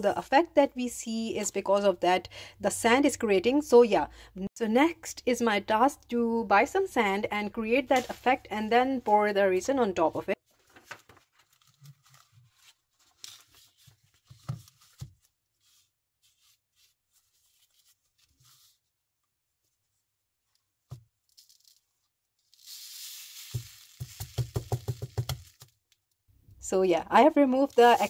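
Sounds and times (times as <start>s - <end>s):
sand rustling under hand: 22.5s - 24.4s, 27.5s - 28.0s
sand pouring off tile: 22.5s - 25.6s.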